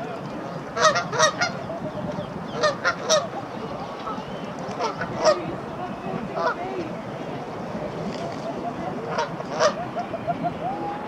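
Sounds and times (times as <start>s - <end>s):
waterfowl calls: 0.8s - 1.7s, 2.5s - 3.4s, 4.0s - 5.4s, 6.4s - 6.6s, 9.1s - 10.8s.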